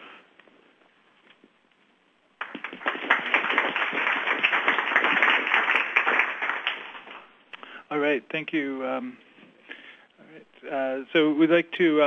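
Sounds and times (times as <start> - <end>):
audience applauding: 2.4 - 7.4.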